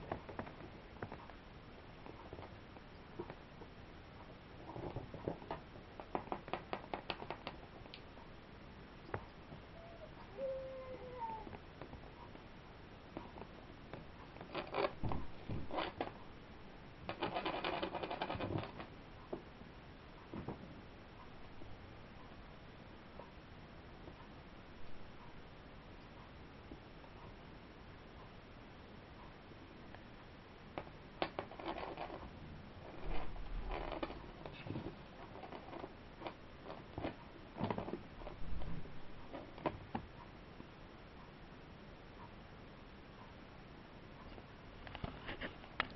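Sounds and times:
kittens' claws scrabbling on rug: 0:32.8 - 0:40.0.

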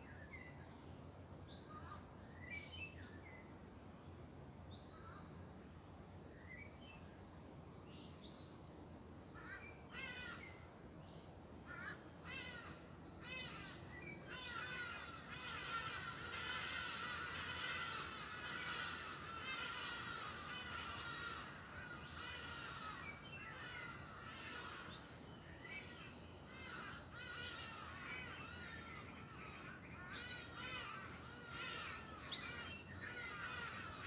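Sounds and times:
birds chirping and calling: 0:11.7 - 0:34.0.

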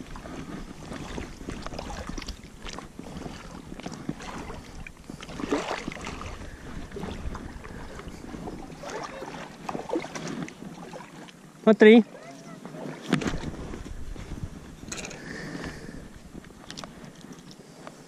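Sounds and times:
fishing tackle clicks and knocks: 0:14.8 - 0:15.2.

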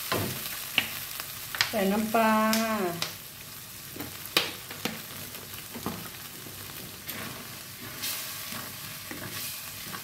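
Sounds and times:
sauce sizzling in a wok: 0:00.0 - 0:10.0
spatula scraping a wok: 0:04.9 - 0:10.0.

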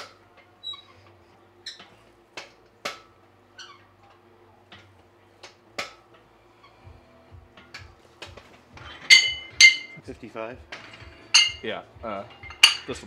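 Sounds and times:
metal gym equipment clinking: 0:07.6 - 0:10.0, 0:10.7 - 0:13.0.

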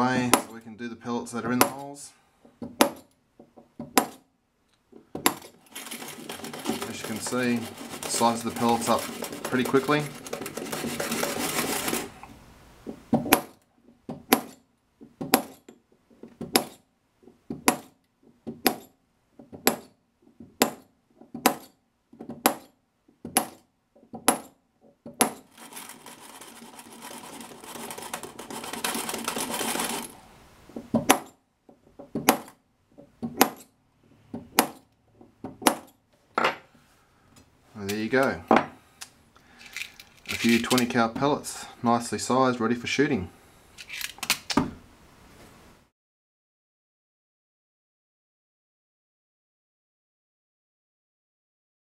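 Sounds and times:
metal scraping: 0:05.4 - 0:12.2, 0:25.3 - 0:30.2.

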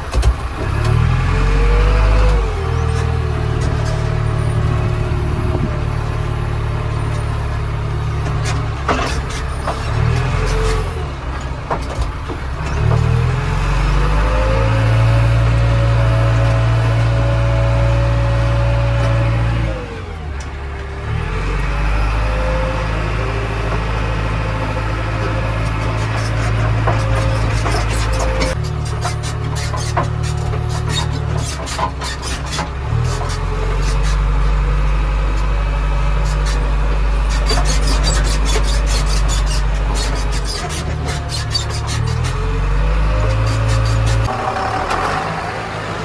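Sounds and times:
diesel engine running under load: 0:00.0 - 0:46.0
knocks and rattles: 0:23.7 - 0:34.2.

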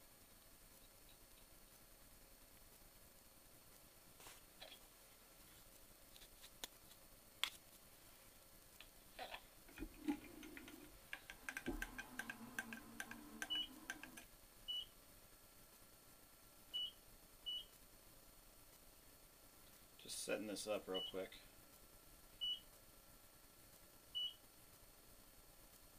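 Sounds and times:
faint clicks and rattling: 0:08.8 - 0:14.3
short electronic beeps: 0:13.4 - 0:13.8.

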